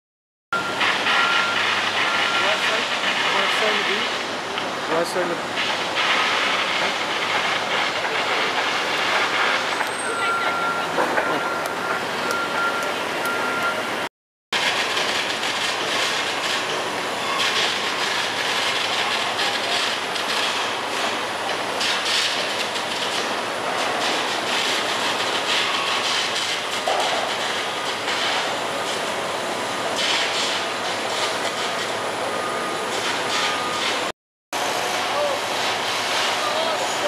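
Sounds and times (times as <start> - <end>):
steady mechanical rush: 0.6 - 9.9.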